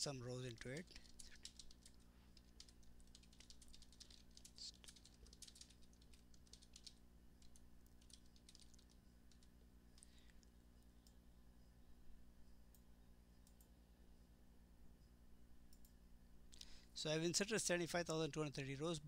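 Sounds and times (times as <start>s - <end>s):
typing on keyboard: 0.4s - 9.6s.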